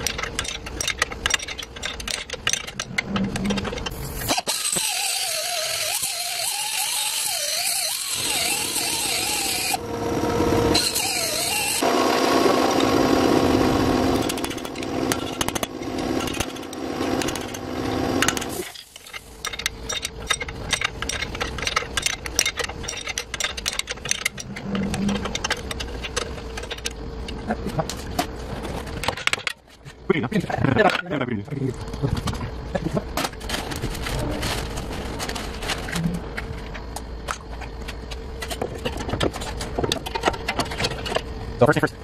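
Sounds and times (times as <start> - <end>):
angle grinder cutting metal: 4.2 - 18.8
wrench clicking: 18.2 - 27.0.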